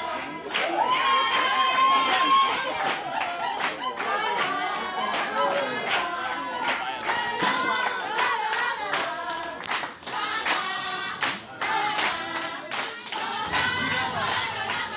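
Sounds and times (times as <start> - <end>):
group of people singing: 0.0 - 14.9
hands clapping in time: 5.9 - 14.9.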